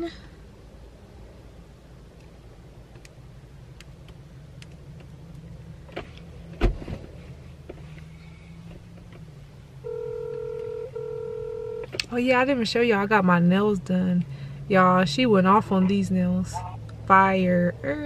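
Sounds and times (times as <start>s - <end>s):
low steady hum: 0.0s - 18.0s
phone ringback tone: 9.8s - 11.9s.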